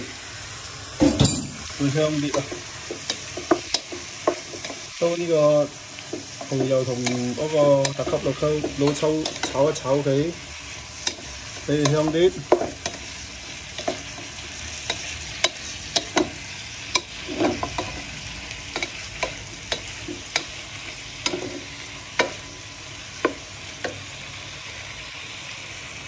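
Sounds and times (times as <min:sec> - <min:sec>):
food sizzling: 0:00.0 - 0:26.0
wooden spatula scraping a pan: 0:01.6 - 0:05.4, 0:11.0 - 0:22.5.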